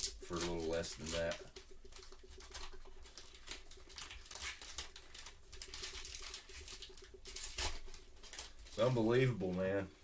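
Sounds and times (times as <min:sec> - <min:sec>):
wrapper crinkling and tearing: 0:00.0 - 0:09.3.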